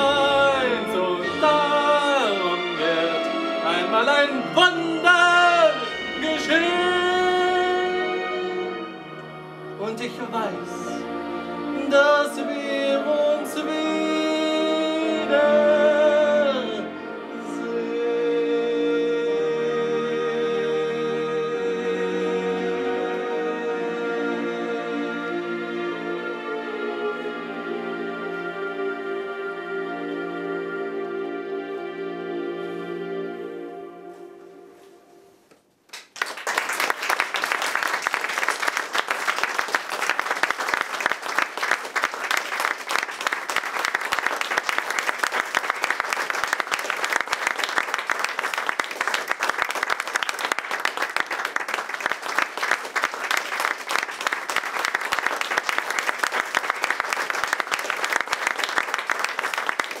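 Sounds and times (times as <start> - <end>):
audience applause: 35.9 - 60.0.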